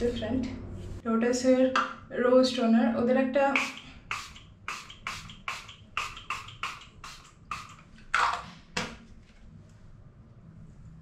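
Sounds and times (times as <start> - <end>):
spray bottle hissing: 3.6 - 7.9.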